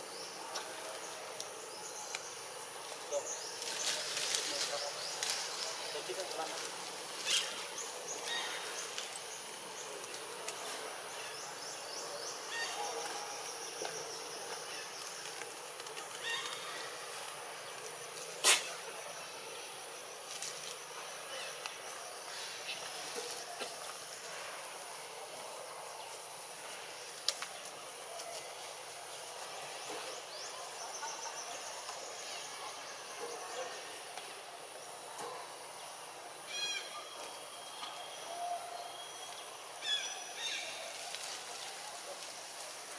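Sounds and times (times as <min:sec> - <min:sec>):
forest background noise: 0:00.0 - 0:42.9.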